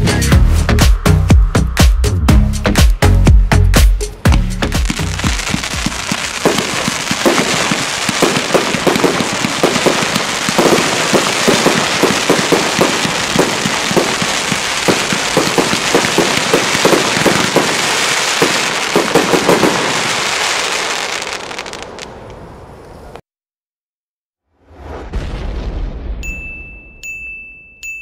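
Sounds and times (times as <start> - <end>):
fireworks crackling and popping: 4.2 - 22.5.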